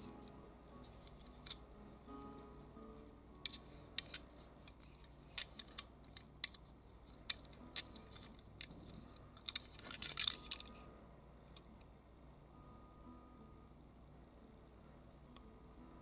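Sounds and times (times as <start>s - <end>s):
fingers clicking toy car: 3.4s - 10.8s
rustling: 3.4s - 10.9s.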